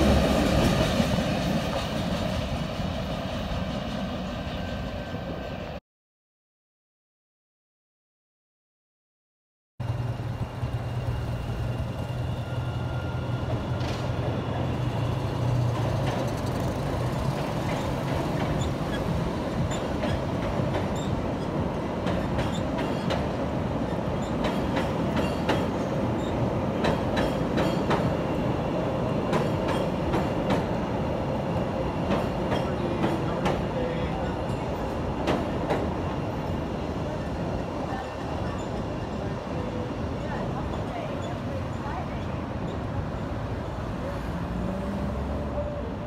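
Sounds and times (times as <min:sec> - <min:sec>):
train wheels rumbling on rails: 0:00.0 - 0:05.7, 0:09.8 - 0:46.0.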